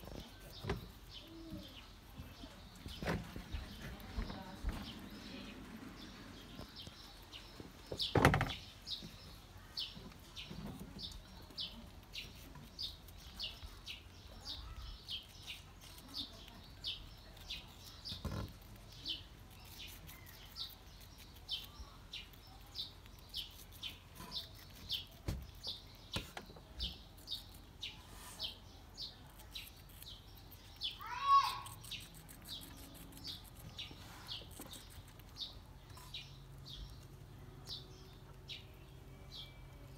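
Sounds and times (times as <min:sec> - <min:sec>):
small bird chirping: 0:00.0 - 0:39.9.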